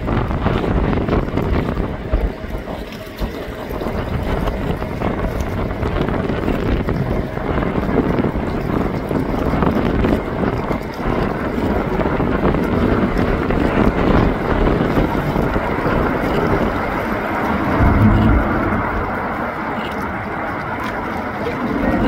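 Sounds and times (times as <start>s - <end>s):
strong wind buffeting microphone: 0.0s - 22.0s
jet aircraft engines rumbling: 14.3s - 22.0s.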